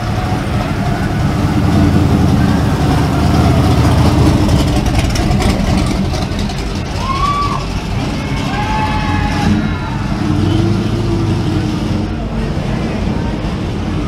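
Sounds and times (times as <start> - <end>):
car engine rumbling: 0.0 - 14.0.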